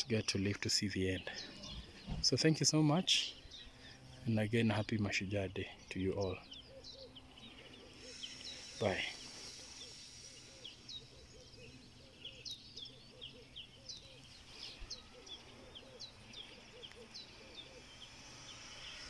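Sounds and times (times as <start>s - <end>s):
high bird chirps: 5.7s - 19.0s
lower arched bird call: 6.4s - 19.0s.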